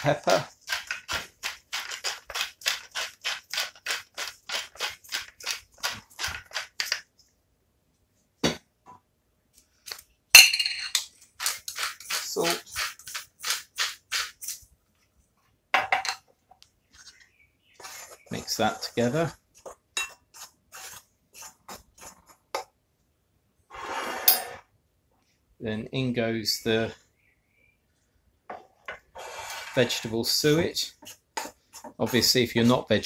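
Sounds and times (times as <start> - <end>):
pepper mill grinding: 0.0 - 7.0, 10.9 - 14.6.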